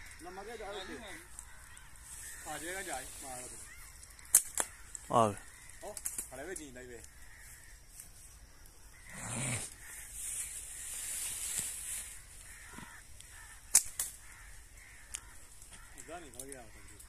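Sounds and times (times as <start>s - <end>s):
faint bird calls: 0.0s - 17.0s
slingshot cracks: 4.0s - 4.9s, 5.8s - 6.6s, 13.6s - 14.4s.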